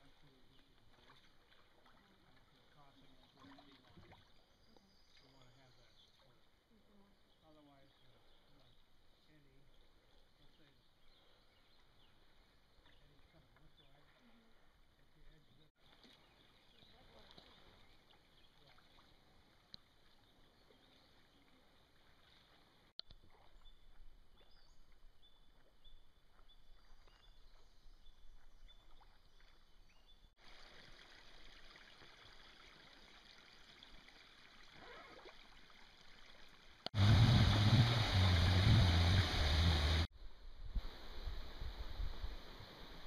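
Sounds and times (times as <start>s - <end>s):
kayak gliding on water: 0.0s - 40.1s
water dripping and trickling: 30.4s - 40.1s
loud rushing rumbling noise: 37.0s - 40.1s.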